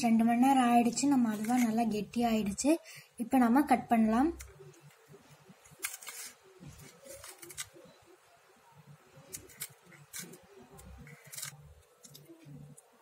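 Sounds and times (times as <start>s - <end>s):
knife clicking and scraping steel: 9.3s - 12.4s.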